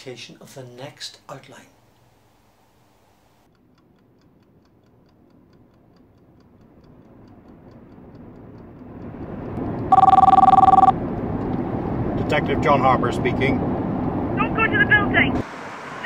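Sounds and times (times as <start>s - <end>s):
car road and engine noise: 6.5s - 16.0s
phone ringing two-tone ring: 9.9s - 11.0s.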